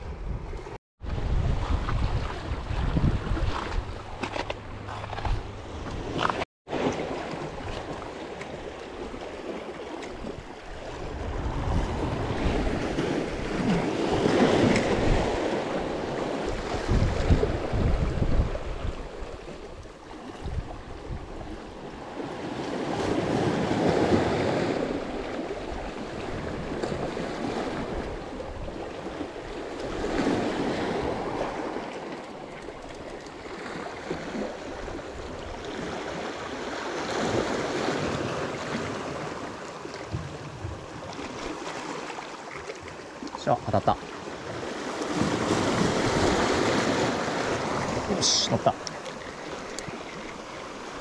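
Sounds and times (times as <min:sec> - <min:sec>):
surf washing in: 0:33.7 - 0:51.0.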